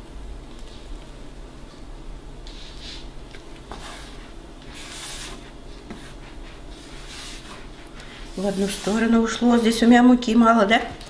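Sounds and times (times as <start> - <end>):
low steady hum: 0.0 - 11.0
plastic bowl rubbing on countertop: 3.7 - 10.0.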